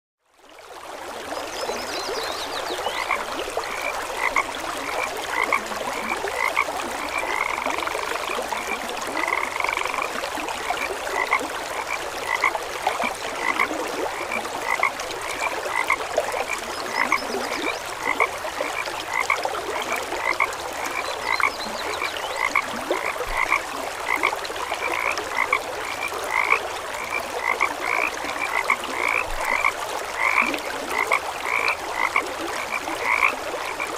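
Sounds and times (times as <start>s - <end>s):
frogs croaking: 1.3s - 33.9s
distant frog chorus hiss: 2.8s - 10.1s, 10.7s - 24.2s, 24.8s - 33.8s.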